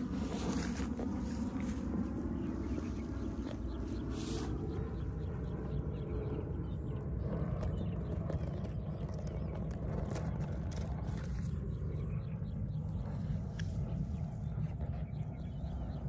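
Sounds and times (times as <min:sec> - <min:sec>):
dry grass rustling: 0:00.0 - 0:04.7
wind rumble on microphone: 0:00.0 - 0:16.0.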